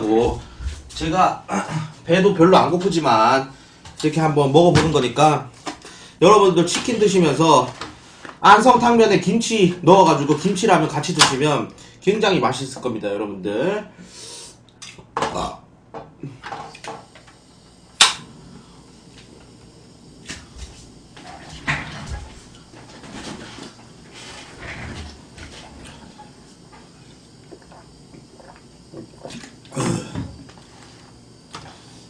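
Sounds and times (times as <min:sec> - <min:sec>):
person shifting in chair: 0:20.3 - 0:26.2.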